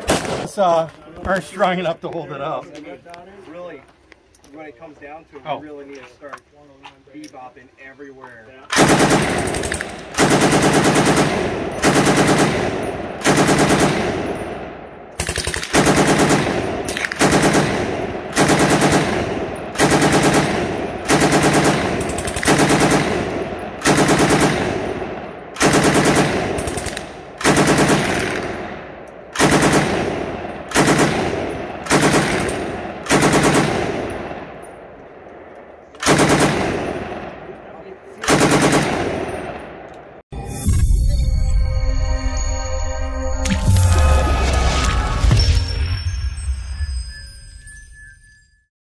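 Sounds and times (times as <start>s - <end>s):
machine gun firing bursts: 8.7s - 14.4s, 15.1s - 34.4s, 36.0s - 37.2s, 38.2s - 39.3s.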